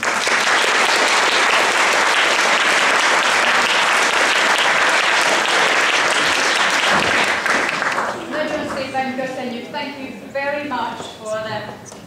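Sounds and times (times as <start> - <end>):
audience clapping: 0.0 - 8.9.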